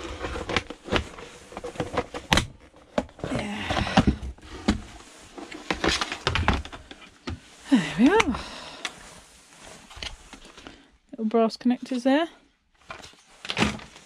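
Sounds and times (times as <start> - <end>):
plastic scraping: 0.0 - 10.8, 12.8 - 14.0
plastic casing clicking and creaking: 0.1 - 4.8.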